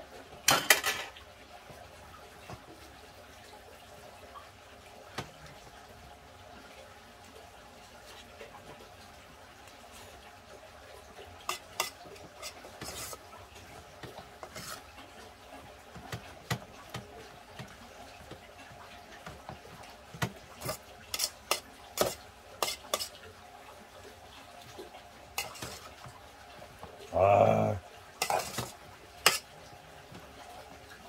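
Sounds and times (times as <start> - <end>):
spoon scraping a pot: 11.5 - 13.2, 14.4 - 14.8, 20.6 - 23.1, 25.4 - 25.9, 28.2 - 29.5.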